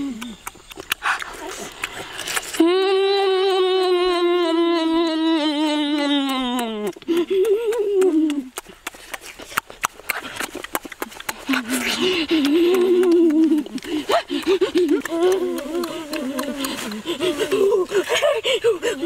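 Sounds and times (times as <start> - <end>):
boy humming while eating: 0.0 - 0.6, 2.4 - 8.6, 11.4 - 19.0
quick mouth clicks: 0.0 - 2.8, 6.0 - 18.2.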